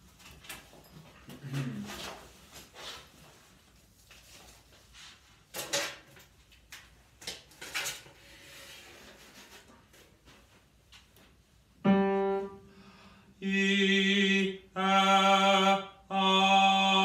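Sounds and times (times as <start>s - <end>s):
papers rustling: 0.0s - 11.3s.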